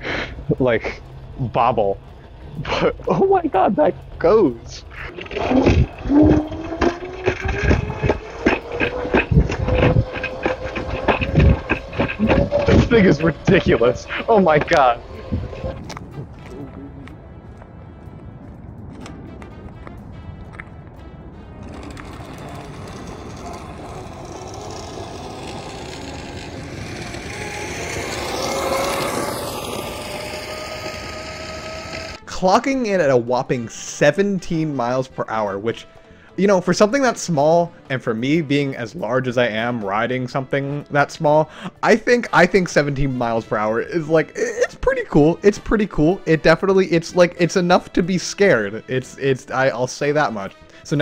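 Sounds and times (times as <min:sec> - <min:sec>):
rough rasping noise: 0:00.0 - 0:17.4, 0:21.5 - 0:51.0
wheels rattling over pavement cracks: 0:00.0 - 0:17.8, 0:21.5 - 0:33.1
electric scooter motor whine: 0:00.0 - 0:18.2, 0:21.5 - 0:32.3.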